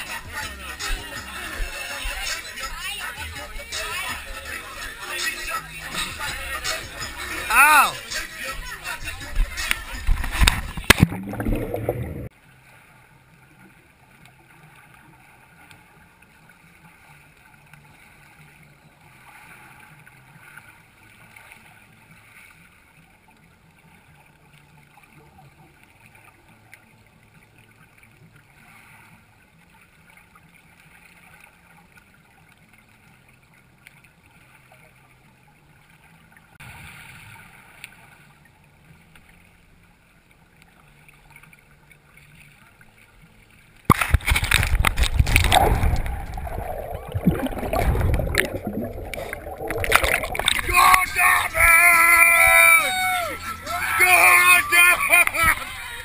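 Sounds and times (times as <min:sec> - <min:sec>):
muffled underwater sound: 0:08.6 - 0:12.3, 0:40.1 - 0:56.0
camera splashing underwater: 0:09.4 - 0:12.3, 0:43.8 - 0:51.6
low steady hum: 0:38.0 - 0:51.6.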